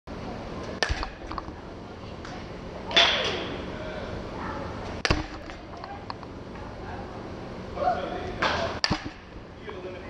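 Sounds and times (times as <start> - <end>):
bat cracking ball with metallic ring: 0.8 - 1.6, 2.9 - 3.5, 5.0 - 6.2, 8.4 - 9.4.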